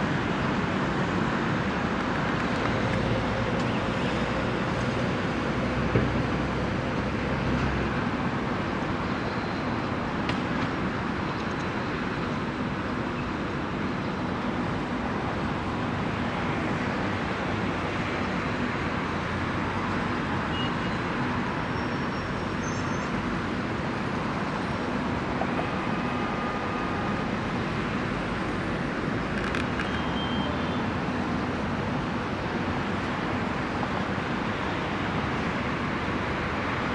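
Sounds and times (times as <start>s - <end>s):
distant road traffic rumble: 0.0s - 36.9s.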